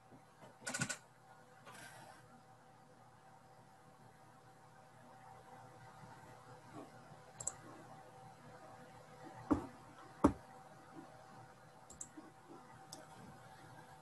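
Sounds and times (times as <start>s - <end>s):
faint steady hum: 0.0s - 14.0s
computer mouse clicking: 7.4s - 7.7s, 11.9s - 12.3s.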